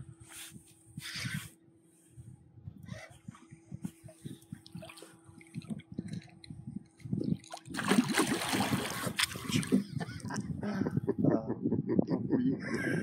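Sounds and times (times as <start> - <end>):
water splashing and knocking: 7.4 - 9.8.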